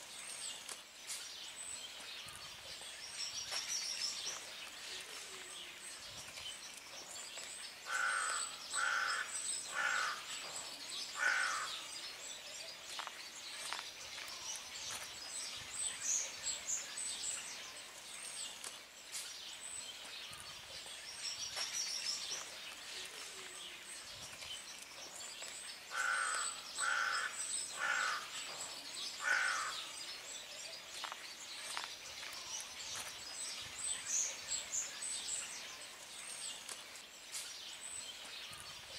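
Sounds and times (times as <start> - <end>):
small birds chirping: 0.0 - 38.9
crow cawing: 7.9 - 10.3, 11.2 - 11.8, 25.9 - 28.3, 29.2 - 29.8.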